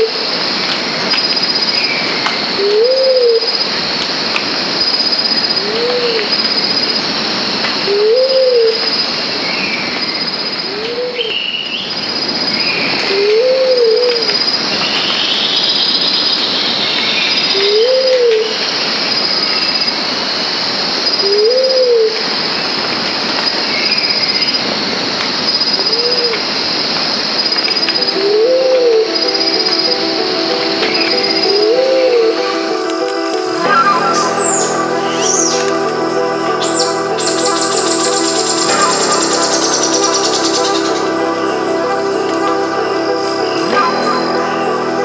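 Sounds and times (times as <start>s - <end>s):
bird hooting: 2.6s - 3.6s, 7.9s - 8.8s, 13.1s - 14.2s, 17.6s - 18.5s, 21.2s - 22.2s, 27.8s - 45.0s
high insect drone: 23.4s - 45.0s
faint birds calling: 27.5s - 45.0s
pulsing chirp: 33.6s - 45.0s.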